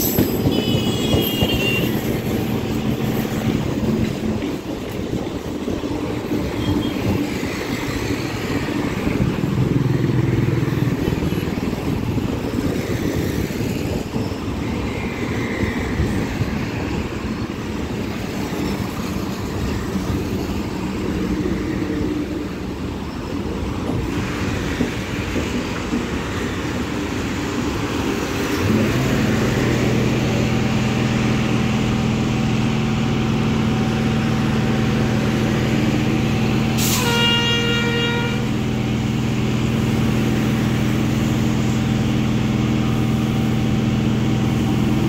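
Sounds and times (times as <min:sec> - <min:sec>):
train wheels rushing: 0:00.0 - 0:45.0
train horn toot: 0:00.4 - 0:02.2, 0:36.8 - 0:38.6.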